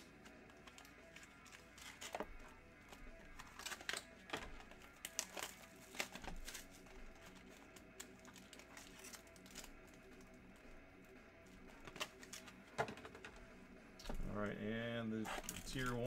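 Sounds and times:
faint background music: 0.0s - 16.0s
plastic-wrapped packs handled: 0.2s - 10.2s.

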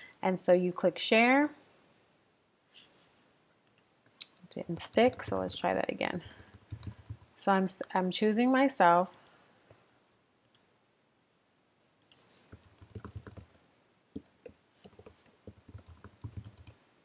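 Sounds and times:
typing on computer keyboard: 4.8s - 5.6s, 6.2s - 7.3s, 12.0s - 13.6s, 14.2s - 16.8s.

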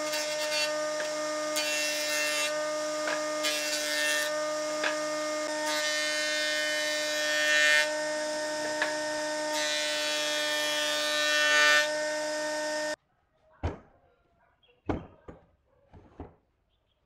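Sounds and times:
jointer-planer motor hum: 7.9s - 9.8s.

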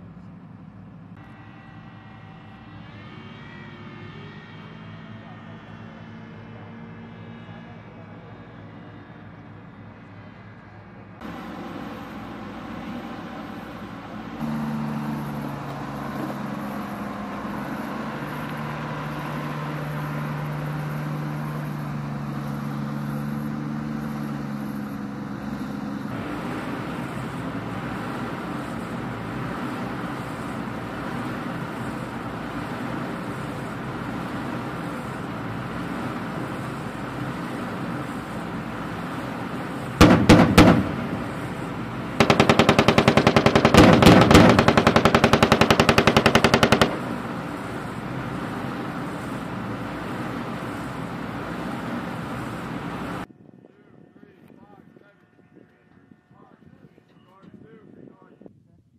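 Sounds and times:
armored vehicle engine running: 11.2s - 53.3s
machine-gun fire: 40.0s - 47.7s.

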